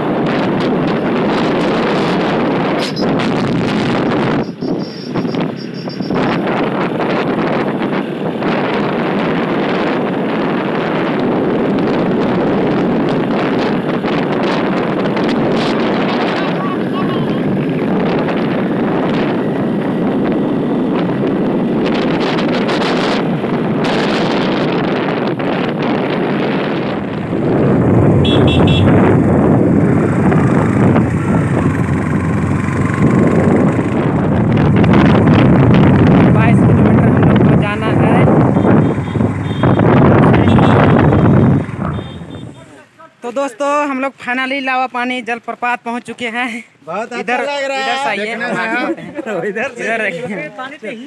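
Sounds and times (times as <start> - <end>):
motorcycle engine: 0.0 - 42.8
wind rushing over microphone: 0.0 - 42.9
road noise: 0.0 - 51.0.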